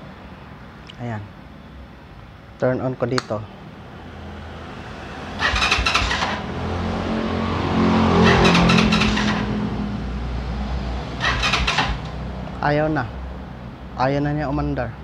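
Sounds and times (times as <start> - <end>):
motorcycle starter cranking engine: 5.4 - 6.5, 8.2 - 9.5, 11.2 - 12.1.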